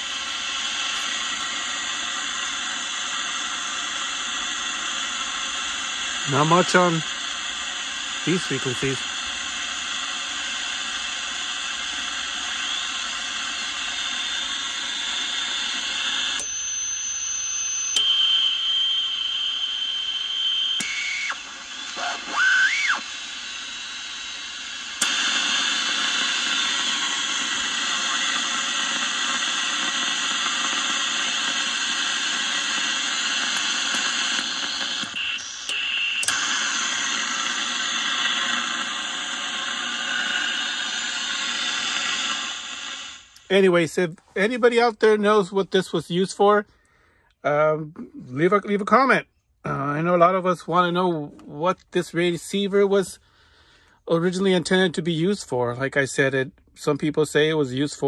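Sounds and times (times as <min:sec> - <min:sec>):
radio static and hiss: 0:00.0 - 0:14.6, 0:20.9 - 0:23.0, 0:25.0 - 0:46.5
gliding radio whistle: 0:00.0 - 0:43.4
steady whistling tones: 0:13.7 - 0:23.1.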